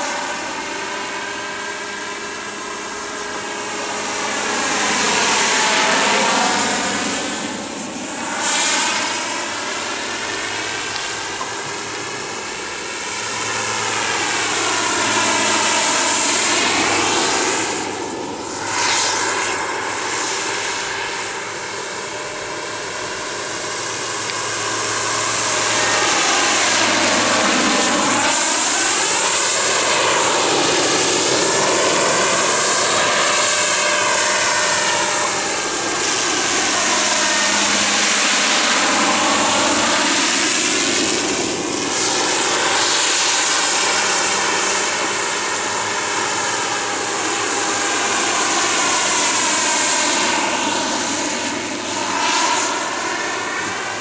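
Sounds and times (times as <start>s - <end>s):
helicopter flying past: 0.0s - 54.0s.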